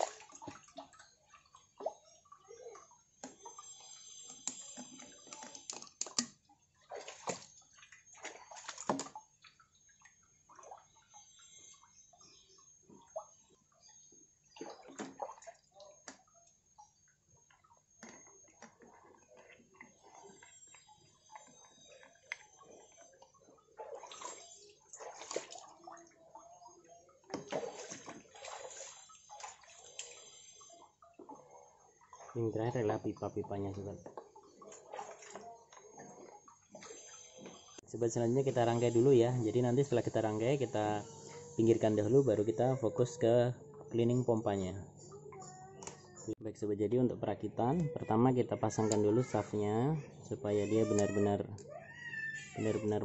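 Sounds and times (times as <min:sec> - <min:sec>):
water splashing and dripping: 0:00.0 - 0:13.8, 0:14.4 - 0:41.0.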